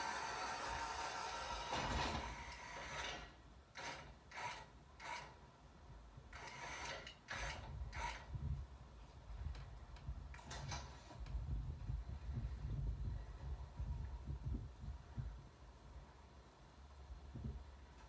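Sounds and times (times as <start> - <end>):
hydraulic unit running: 0.0 - 5.4.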